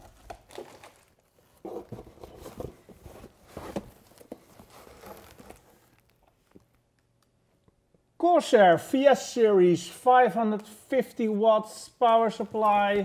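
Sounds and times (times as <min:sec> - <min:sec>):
plastic wrap and cardboard crinkling: 0:00.0 - 0:06.8.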